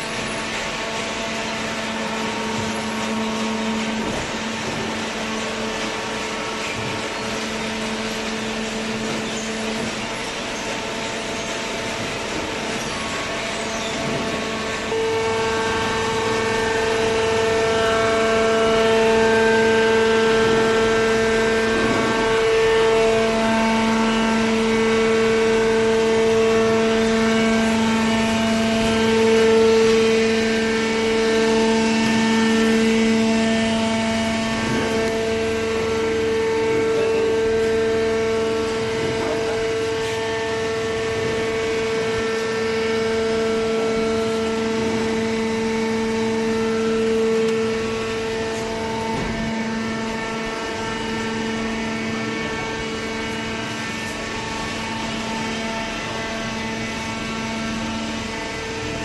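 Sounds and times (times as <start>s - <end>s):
hydraulic pump motor humming: 0.0s - 59.0s.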